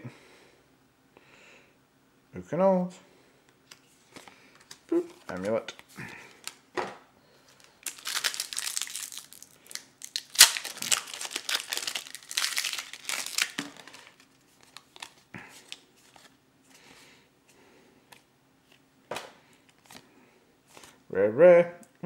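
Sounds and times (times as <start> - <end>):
foil wrapper crinkling and tearing: 7.5 - 16.3.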